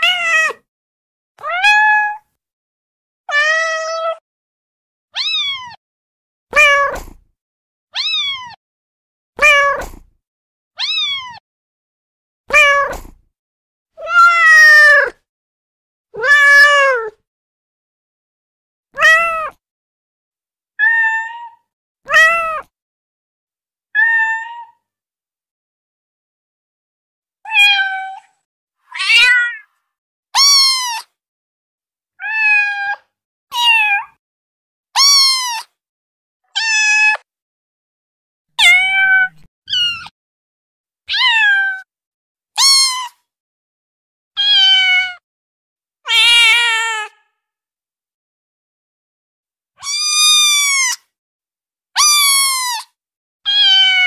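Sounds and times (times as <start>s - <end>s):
high-pitched kitten meows: 0.0s - 0.7s, 1.4s - 2.3s, 3.2s - 4.2s, 5.1s - 5.8s, 6.5s - 7.2s, 7.9s - 8.6s, 9.4s - 10.1s, 10.8s - 11.4s, 12.5s - 13.2s, 14.0s - 15.2s, 16.2s - 17.2s, 18.9s - 19.6s, 20.7s - 22.7s, 23.9s - 24.9s, 27.4s - 29.8s, 30.4s - 31.2s, 32.1s - 34.2s, 35.0s - 35.8s, 36.4s - 37.3s, 38.5s - 40.2s, 41.1s - 41.9s, 42.5s - 43.3s, 44.3s - 45.3s, 46.1s - 47.4s, 49.8s - 51.1s, 52.0s - 54.0s
recorded cat meows: 0.0s - 0.7s, 1.4s - 2.3s, 3.2s - 4.2s, 5.2s - 5.8s, 6.5s - 7.2s, 8.0s - 8.6s, 9.4s - 10.1s, 10.8s - 11.4s, 12.5s - 13.2s, 14.0s - 15.2s, 16.2s - 17.2s, 18.9s - 19.6s, 20.8s - 22.7s, 23.9s - 24.9s, 27.4s - 29.8s, 30.4s - 31.2s, 32.1s - 34.2s, 35.0s - 35.8s, 36.4s - 37.3s, 38.5s - 40.2s, 41.1s - 41.9s, 42.5s - 43.3s, 44.4s - 45.2s, 46.1s - 47.4s, 49.8s - 51.1s, 52.0s - 54.0s.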